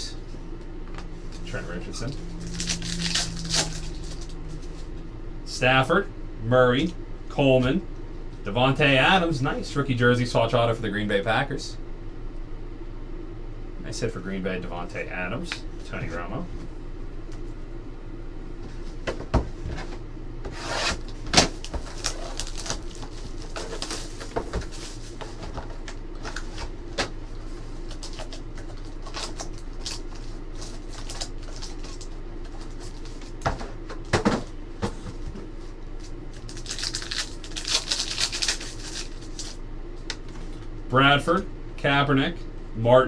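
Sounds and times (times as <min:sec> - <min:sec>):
foil wrapper crinkling: 0:01.4 - 0:04.8, 0:21.6 - 0:25.2, 0:27.8 - 0:33.4, 0:36.3 - 0:39.6.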